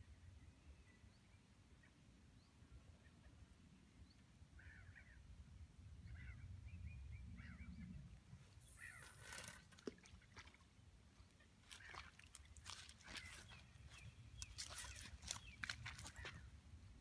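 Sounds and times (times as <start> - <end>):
bird chirps: 11.6 - 16.5.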